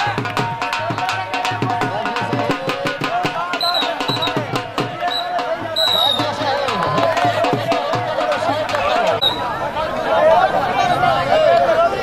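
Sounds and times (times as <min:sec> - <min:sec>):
drum beaten in quick rhythm: 0:00.0 - 0:09.2.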